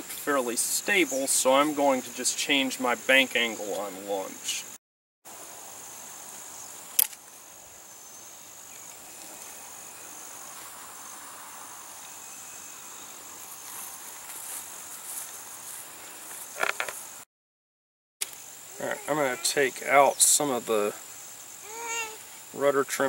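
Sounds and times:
insects chirring: 5.3 - 17.2, 18.2 - 23.0.

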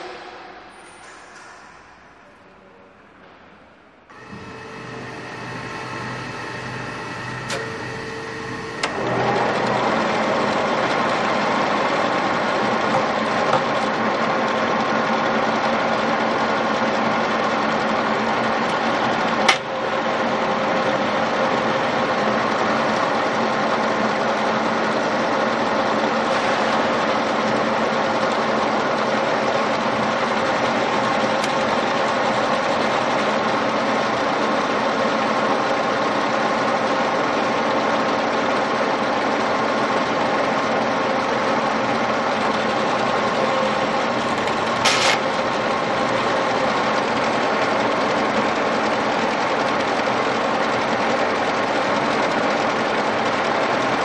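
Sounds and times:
lathe gearbox hum and whine: 3.9 - 54.0
sharp click: 44.4 - 45.2.

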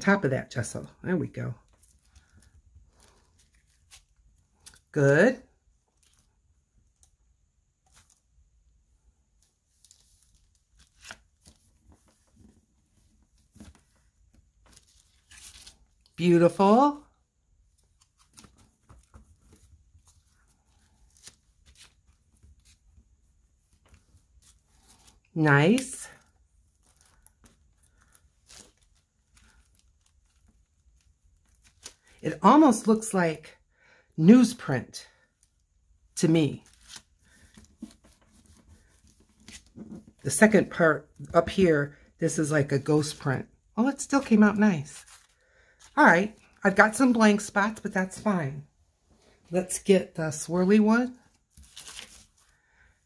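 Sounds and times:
paper rustling: 9.4 - 16.1, 17.7 - 33.0, 36.5 - 40.3, 44.2 - 46.6, 51.2 - 52.6.

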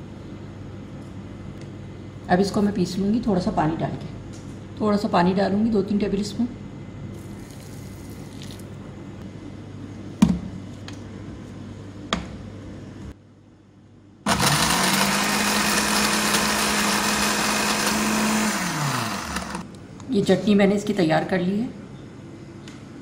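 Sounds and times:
blender motor whining: 14.3 - 19.6.

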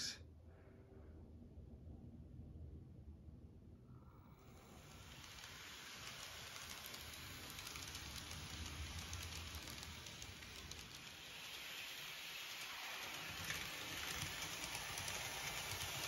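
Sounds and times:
model train rattling hiss: 4.3 - 16.0.

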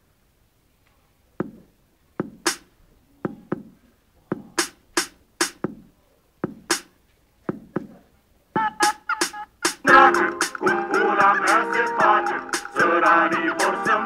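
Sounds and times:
sharp snare or clap hits: 2.4 - 2.7, 4.6 - 5.6, 6.7 - 6.9.

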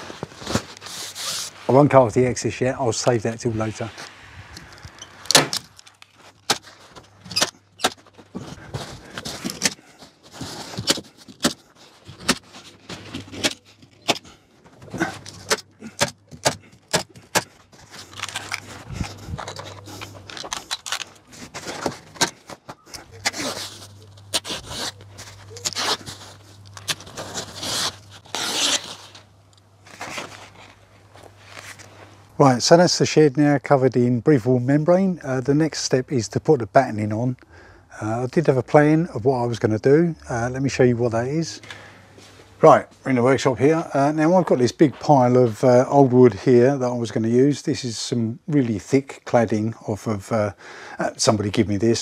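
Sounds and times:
membrane sheet rustling: 0.0 - 14.0, 17.6 - 32.1.

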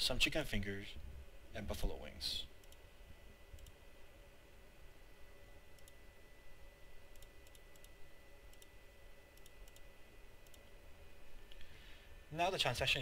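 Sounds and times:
faint steady hum: 0.0 - 13.0
computer mouse clicking: 2.6 - 2.8, 3.5 - 3.8, 5.8 - 6.0, 7.1 - 10.7.

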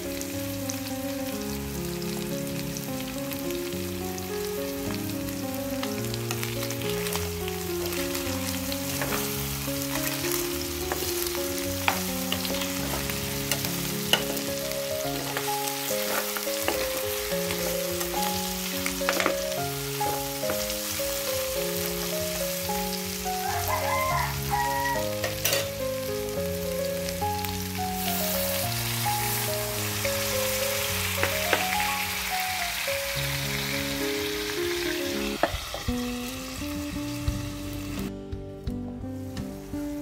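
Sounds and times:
food sizzling in a metal pan: 0.0 - 38.1
water hissing in hot pan: 0.0 - 38.1
background music: 0.0 - 40.0
metal spatula scraping pan: 15.2 - 16.8.

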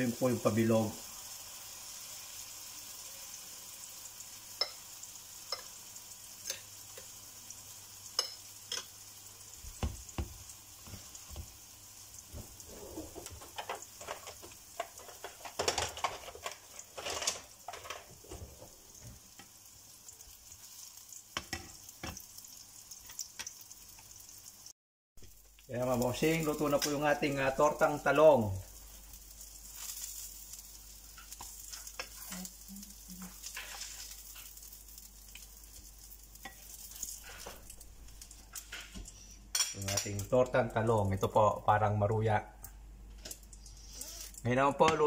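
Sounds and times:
omelette sizzling in oil: 0.0 - 41.5, 42.6 - 45.0
utensils clicking against pan: 8.2 - 8.9.

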